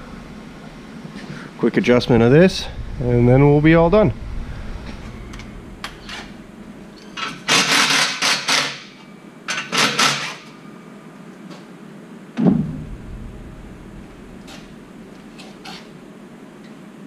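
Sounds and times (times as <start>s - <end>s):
metal exhaust scraping and rattling: 0.0s - 7.8s, 12.6s - 16.0s.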